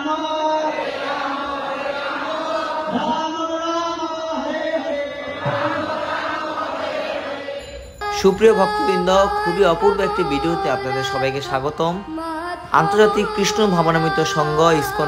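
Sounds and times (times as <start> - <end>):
crowd chanting in unison: 0.4 - 3.3, 4.4 - 7.9.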